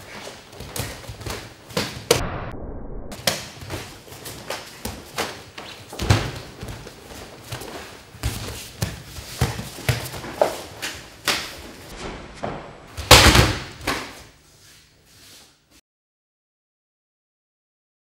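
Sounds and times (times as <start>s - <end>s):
punches and kicks landing: 6.0s - 6.9s, 13.0s - 14.0s.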